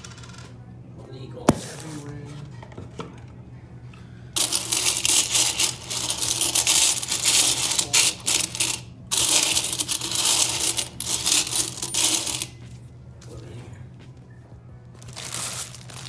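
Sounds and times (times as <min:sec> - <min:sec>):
coins jingling and clinking: 0:04.4 - 0:12.6.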